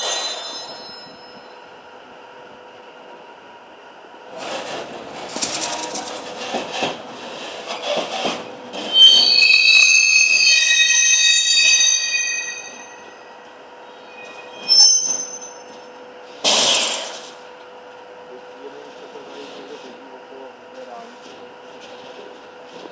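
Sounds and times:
train wheels clattering over track: 0:00.0 - 0:01.4, 0:04.3 - 0:11.6, 0:14.2 - 0:17.5, 0:20.9 - 0:22.9
rail retarder squealing: 0:00.0 - 0:02.0, 0:05.3 - 0:16.4.

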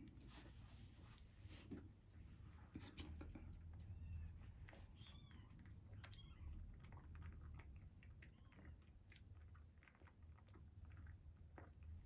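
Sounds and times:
kitten suckling from bottle: 0:02.7 - 0:12.0.

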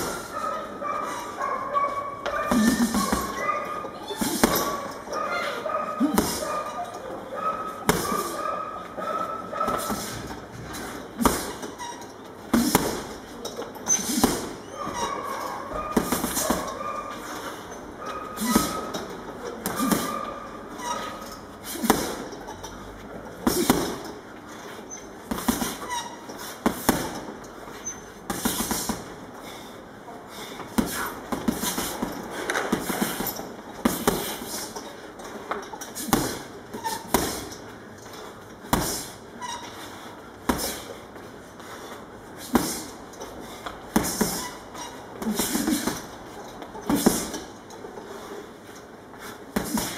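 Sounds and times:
gloves punching heavy bag: 0:00.0 - 0:00.4, 0:02.2 - 0:03.5, 0:04.1 - 0:04.9, 0:05.5 - 0:06.5, 0:07.7 - 0:08.4, 0:09.6 - 0:13.3, 0:13.9 - 0:17.5, 0:18.3 - 0:20.2, 0:21.7 - 0:22.4, 0:23.4 - 0:24.2, 0:25.2 - 0:29.2, 0:30.5 - 0:34.8, 0:35.9 - 0:37.6, 0:38.6 - 0:39.2, 0:40.4 - 0:41.0, 0:42.4 - 0:43.0, 0:43.9 - 0:46.2, 0:46.8 - 0:47.5, 0:49.5 - 0:49.9.

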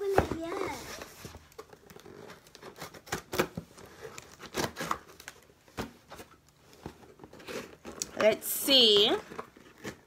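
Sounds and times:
box packaging rustling and clicking: 0:00.0 - 0:10.0.

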